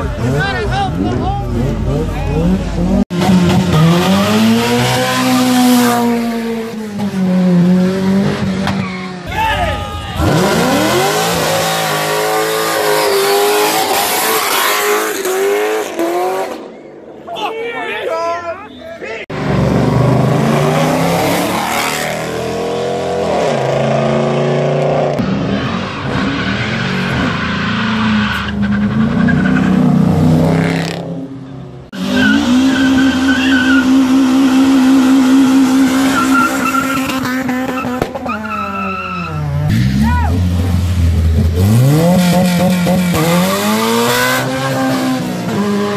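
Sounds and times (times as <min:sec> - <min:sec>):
car engine revving high: 0:00.0 - 0:08.6, 0:10.2 - 0:16.6, 0:32.0 - 0:38.3, 0:39.6 - 0:45.9
tires squealing on pavement: 0:08.4 - 0:15.3, 0:25.2 - 0:30.1, 0:32.0 - 0:40.4.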